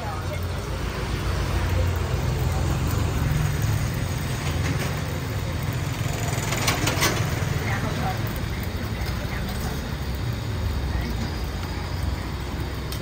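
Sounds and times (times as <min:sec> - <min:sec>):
street traffic rumble: 0:00.0 - 0:13.0
motor scooter passing: 0:00.4 - 0:10.0.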